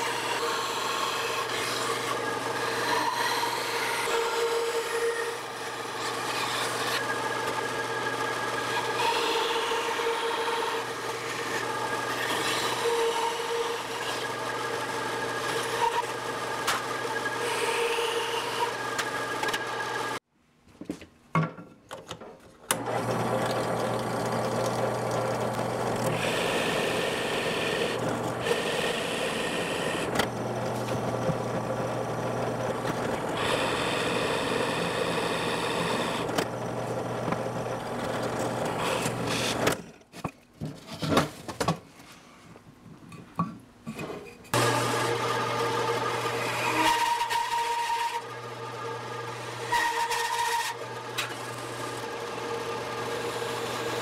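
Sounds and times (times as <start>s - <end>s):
band saw cutting wood: 0.0s - 20.2s, 22.7s - 39.8s, 44.5s - 54.0s
drill press boring into wood: 22.7s - 39.8s, 44.6s - 54.0s.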